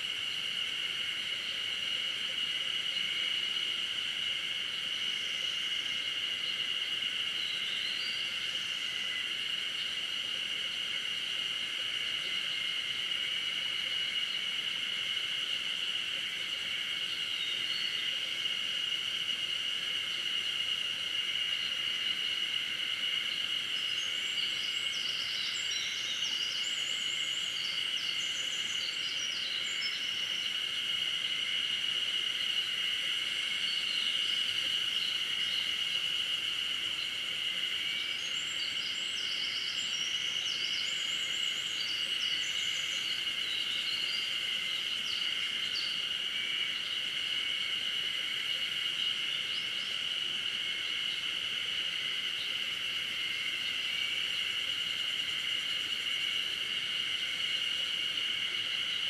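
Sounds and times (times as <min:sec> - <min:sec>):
insect chorus: 0:00.0 - 0:59.0
songbirds singing: 0:06.4 - 0:10.0, 0:23.3 - 0:30.6, 0:37.9 - 0:46.1.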